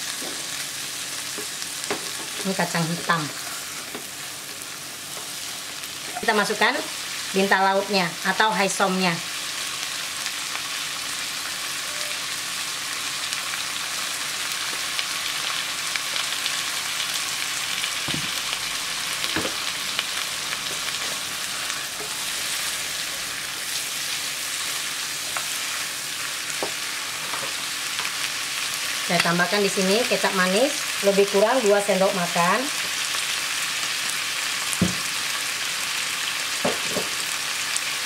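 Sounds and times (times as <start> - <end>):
food sizzling in hot oil: 0.0 - 38.0.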